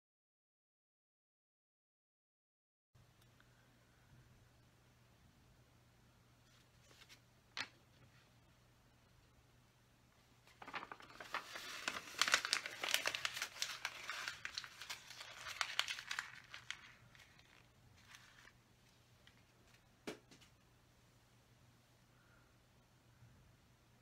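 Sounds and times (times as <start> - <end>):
paper crumpling: 10.5 - 18.6.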